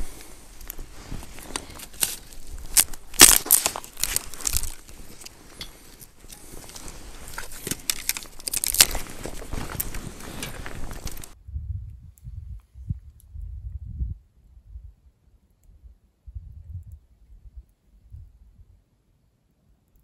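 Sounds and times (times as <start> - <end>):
twigs crackling and snapping: 0.0 - 11.4.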